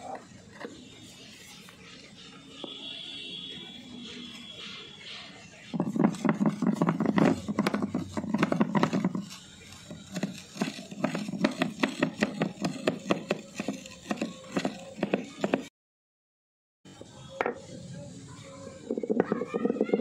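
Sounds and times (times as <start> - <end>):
stone scraping and knocking on stone: 5.7 - 15.7.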